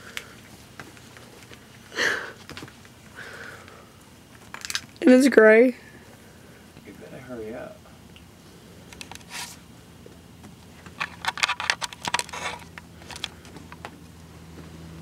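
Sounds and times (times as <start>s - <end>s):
steady low hum: 0.0s - 15.0s
handling scraping and rustling: 8.9s - 9.7s, 10.6s - 13.8s
clicks and scratches: 10.7s - 13.9s.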